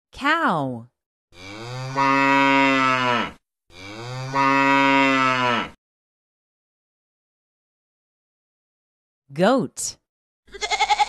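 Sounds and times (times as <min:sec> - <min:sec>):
cow mooing: 0:01.4 - 0:05.8.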